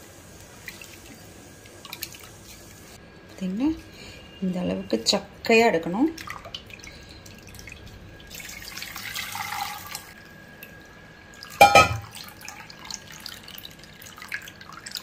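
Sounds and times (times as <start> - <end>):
thin trickle of liquid: 5.9 - 15.0
liquid pouring into a steel pot: 6.2 - 10.2
sharp metal clank: 11.6 - 12.1.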